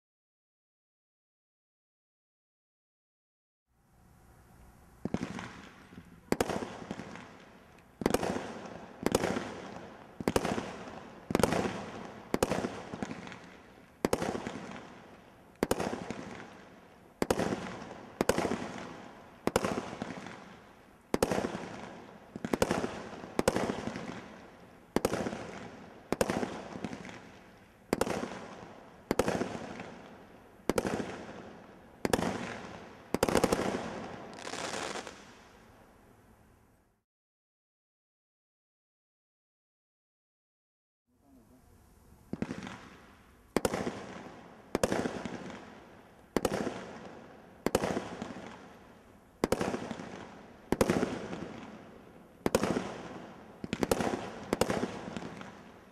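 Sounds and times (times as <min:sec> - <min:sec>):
roman candle firing sharp shots: 0:05.0 - 0:35.3, 0:42.3 - 0:43.0, 0:43.6 - 0:48.7, 0:49.4 - 0:55.9.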